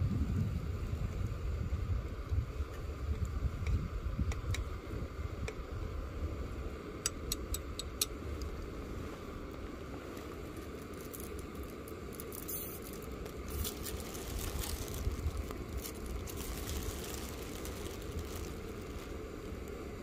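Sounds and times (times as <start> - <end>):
camping stove burning: 0.0 - 20.0
faint crackling and ticking: 9.4 - 20.0.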